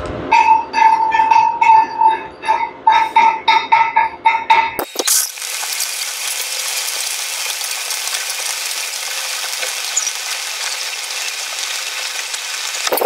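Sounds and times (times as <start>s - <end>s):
welding arc crackling sizzle: 4.8s - 13.0s.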